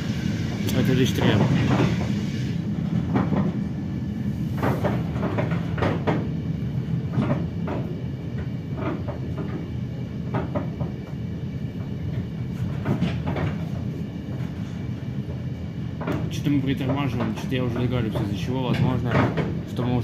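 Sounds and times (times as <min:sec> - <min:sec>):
train car rumble: 0:00.0 - 0:20.0
sharp knocks and clicks: 0:03.0 - 0:03.6, 0:04.6 - 0:06.3, 0:07.1 - 0:11.2, 0:11.8 - 0:13.8, 0:16.0 - 0:19.6.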